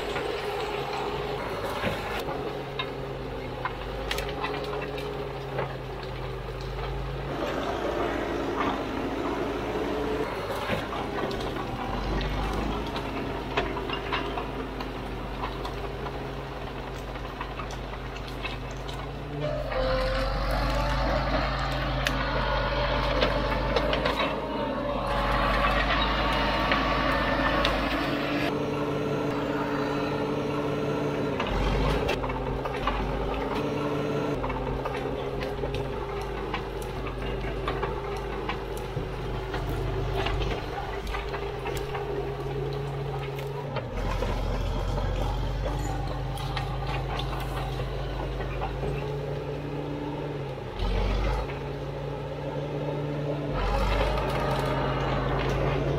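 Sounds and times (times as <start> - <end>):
clattering tracks: 0.0 - 30.3, 31.1 - 55.9
diesel engine running: 0.0 - 55.9
brush cracking: 34.3 - 52.1, 53.5 - 55.9.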